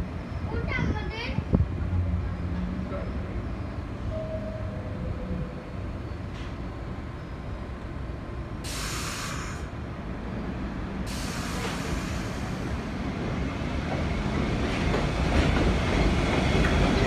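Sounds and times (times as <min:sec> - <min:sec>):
subway train rumbling: 0:00.0 - 0:17.0
air brake hiss: 0:08.6 - 0:09.8, 0:11.1 - 0:12.7.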